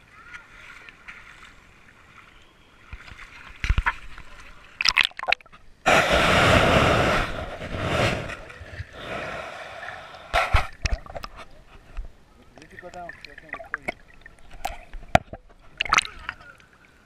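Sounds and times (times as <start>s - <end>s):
water sloshing and gurgling: 0.0s - 17.0s
camera knocking and splashing: 4.8s - 5.6s, 10.4s - 16.4s.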